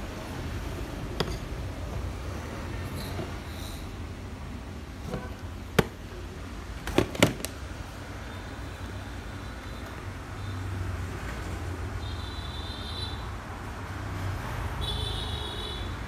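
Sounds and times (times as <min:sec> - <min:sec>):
plastic clicks and knocks: 0:05.1 - 0:06.0, 0:06.8 - 0:07.6.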